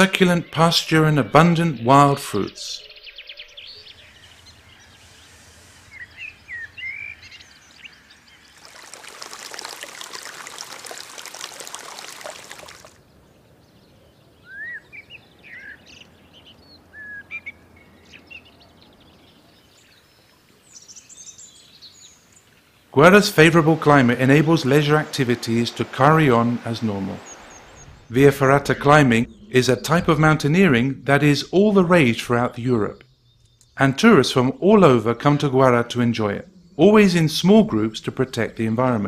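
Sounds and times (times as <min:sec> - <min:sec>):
small birds chirping: 0:00.0 - 0:39.0
running water rushing: 0:08.4 - 0:13.0, 0:22.9 - 0:30.6.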